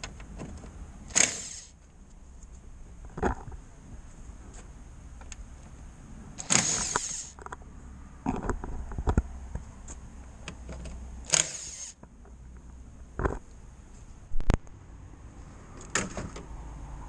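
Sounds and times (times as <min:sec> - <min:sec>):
impact driver whirring: 0:01.1 - 0:01.8, 0:06.4 - 0:07.4, 0:11.3 - 0:12.0
tool and plastic clicks: 0:10.5 - 0:12.1.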